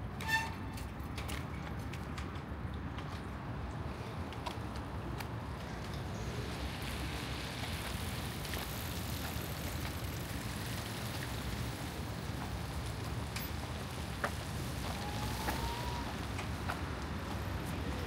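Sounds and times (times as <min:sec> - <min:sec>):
traffic on wet roads: 0:00.2 - 0:18.0
light rain falling: 0:05.4 - 0:18.0.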